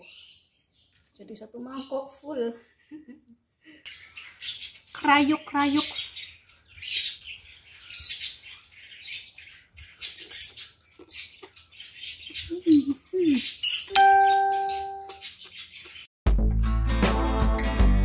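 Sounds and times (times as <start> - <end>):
chime tone: 13.9 - 15.2.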